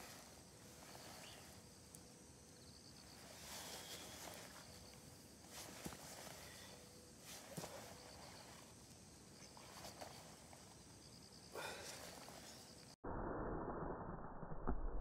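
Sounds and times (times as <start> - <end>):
rustling on grass: 0.0 - 1.9, 2.9 - 10.8
faint insect chirping: 0.0 - 13.0.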